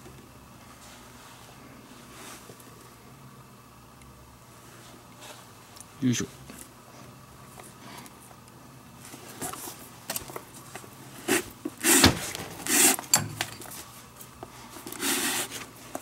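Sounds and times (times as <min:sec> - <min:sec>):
lace scraping through leather: 0:11.2 - 0:13.1, 0:14.9 - 0:15.7.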